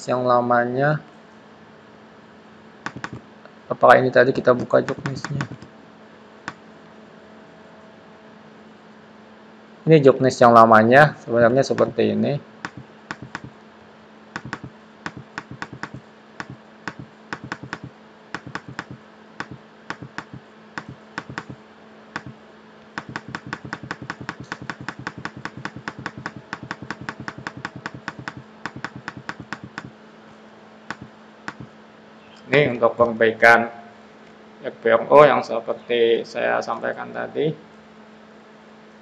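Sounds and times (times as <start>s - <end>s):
faint steady hum: 0.0s - 39.0s
computer mouse clicking: 2.9s - 3.2s, 4.6s - 5.7s, 11.8s - 12.0s, 12.6s - 13.5s, 14.4s - 21.6s, 22.2s - 22.4s, 23.0s - 29.9s, 30.9s - 31.7s.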